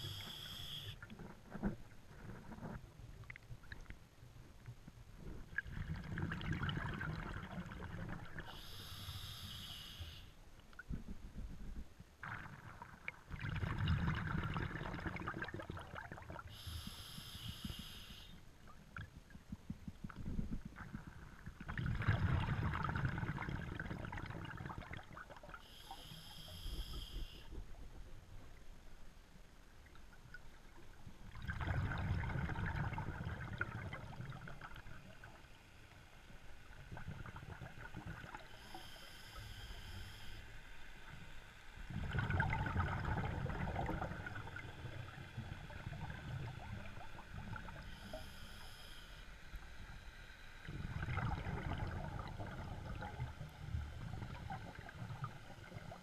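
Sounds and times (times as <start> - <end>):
regulator inhalation hiss: 0.0 - 1.0, 8.4 - 10.4, 16.5 - 18.4, 25.6 - 27.6, 38.4 - 40.5, 47.8 - 50.0
gurgling exhaled bubbles: 5.5 - 8.6, 12.2 - 16.4, 20.8 - 25.6, 31.3 - 35.2, 41.9 - 47.8, 50.7 - 56.0.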